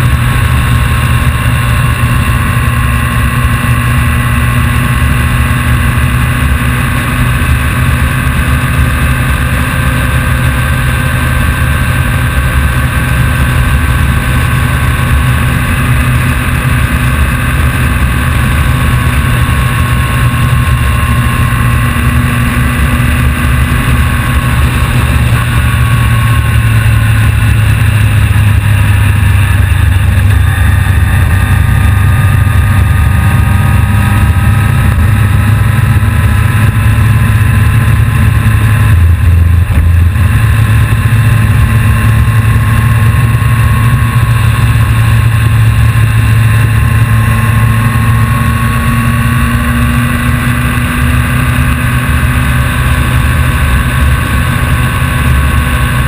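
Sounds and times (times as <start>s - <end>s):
engine whine: 0.0s - 56.0s
vehicle engine rumbling: 0.0s - 56.0s.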